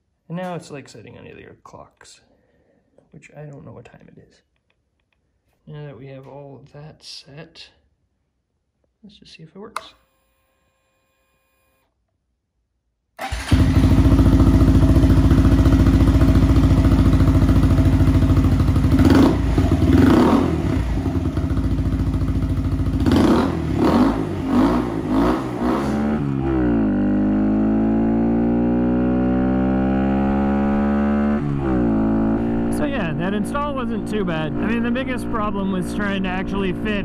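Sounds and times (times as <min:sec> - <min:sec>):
motorbike accelerating along road: 0:13.2 - 0:37.0
motorbike engine idling and revving: 0:13.2 - 0:37.0.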